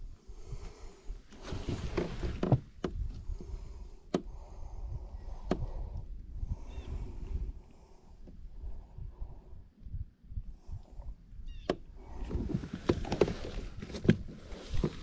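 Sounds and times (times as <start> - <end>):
wind rumble on microphone: 0.0 - 15.0
handling noise: 12.2 - 15.0.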